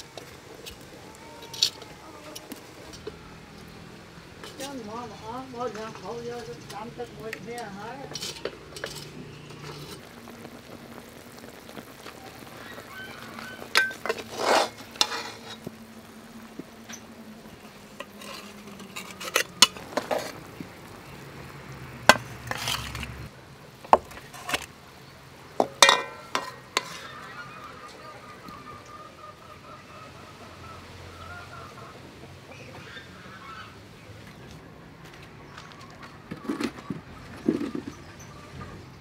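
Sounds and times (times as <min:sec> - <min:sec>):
tongs clinking on metal pot: 0:07.6 - 0:10.0, 0:25.8 - 0:27.3.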